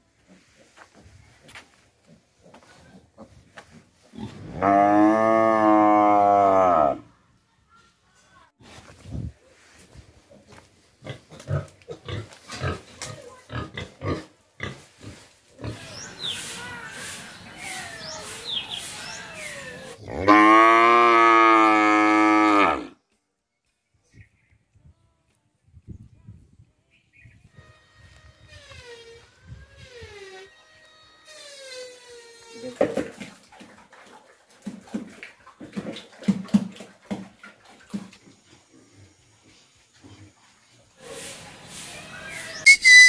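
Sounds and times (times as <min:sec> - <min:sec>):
cow mooing: 0:04.6 - 0:07.0.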